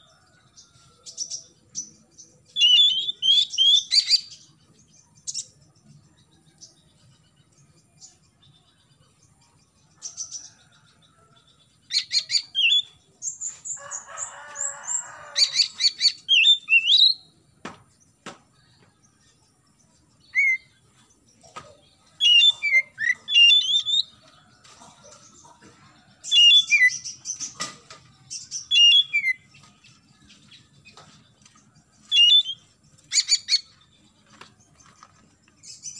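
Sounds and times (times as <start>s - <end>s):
bird singing whistles and trills: 2.5s - 4.3s, 11.9s - 13.0s, 15.6s - 17.3s, 20.2s - 20.8s, 22.2s - 24.1s, 28.6s - 29.4s, 32.1s - 33.7s.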